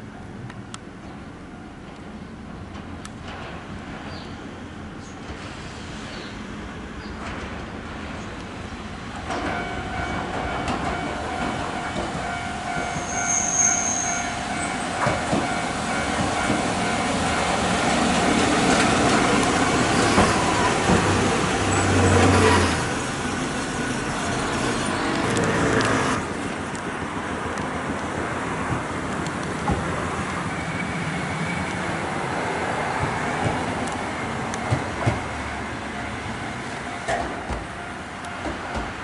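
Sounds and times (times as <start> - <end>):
tram motor whine: 9.0 - 39.0
high wheel squeal: 12.2 - 17.6, 30.3 - 32.0.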